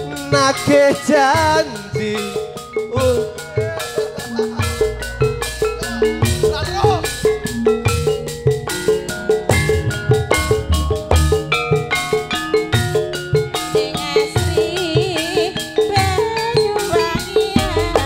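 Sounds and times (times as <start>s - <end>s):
gamelan metallophones and gongs: 0.0s - 18.0s
hand drum strokes: 1.4s - 12.0s
woman singing with vibrato: 13.7s - 18.0s.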